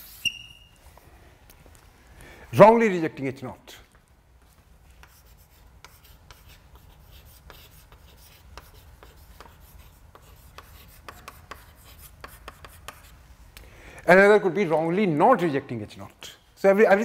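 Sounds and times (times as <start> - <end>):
chalk scratching on chalkboard: 0.0 - 0.4, 4.9 - 13.2.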